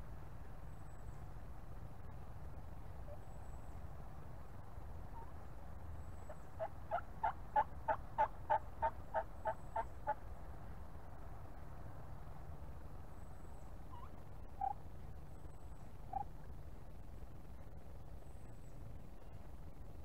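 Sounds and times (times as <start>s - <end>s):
turkey yelping: 13.9s - 14.8s.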